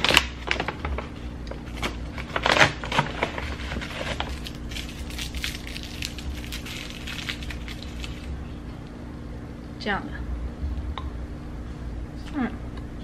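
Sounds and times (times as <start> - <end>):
foil wrapper crinkling: 1.6 - 8.4.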